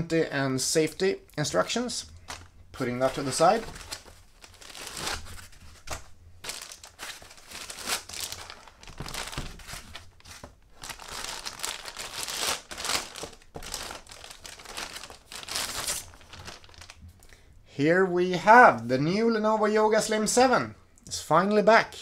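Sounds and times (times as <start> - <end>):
plastic sleeve crinkling: 1.4 - 17.3.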